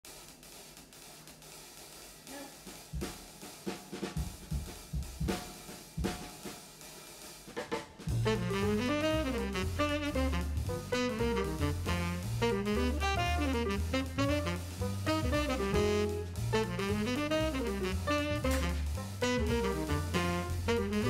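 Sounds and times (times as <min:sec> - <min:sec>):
drum kit playing: 0:00.0 - 0:21.0
bass line and melody instruments: 0:08.1 - 0:21.0.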